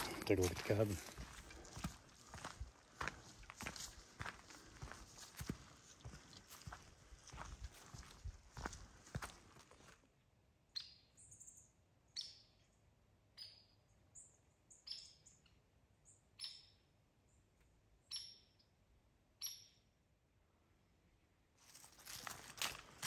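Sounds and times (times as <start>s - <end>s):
fainter high bird chirps: 10.7s - 20.0s.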